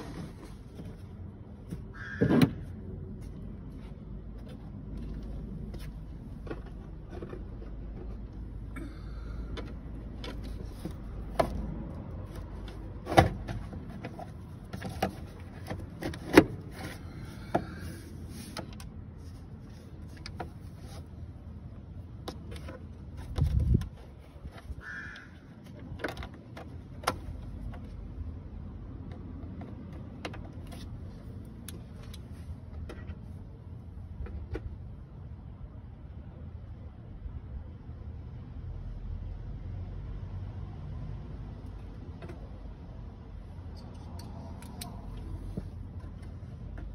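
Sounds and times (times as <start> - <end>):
hands handling hoses: 4.4 - 28.1.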